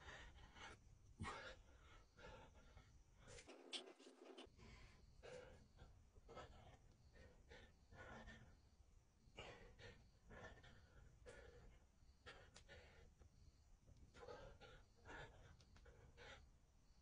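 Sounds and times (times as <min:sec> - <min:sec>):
man breathing heavily: 0:00.0 - 0:03.6, 0:04.4 - 0:17.0.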